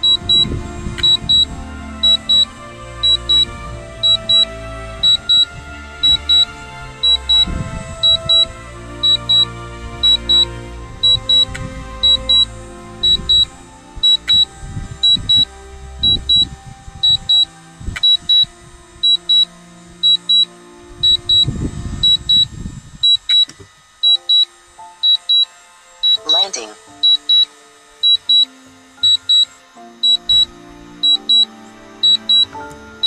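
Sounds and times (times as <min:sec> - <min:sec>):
background music: 0:00.0 - 0:33.0
high double beep alert: 0:04.0 - 0:05.4, 0:07.0 - 0:07.4, 0:08.0 - 0:09.4, 0:11.0 - 0:12.4, 0:14.0 - 0:17.4, 0:18.0 - 0:20.4, 0:25.1 - 0:29.5, 0:30.1 - 0:32.5.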